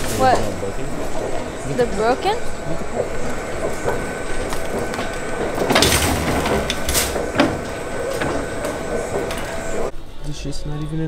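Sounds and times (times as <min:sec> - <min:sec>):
shopping cart clatter: 0:00.0 - 0:09.9
shopping cart rattling: 0:00.0 - 0:09.9.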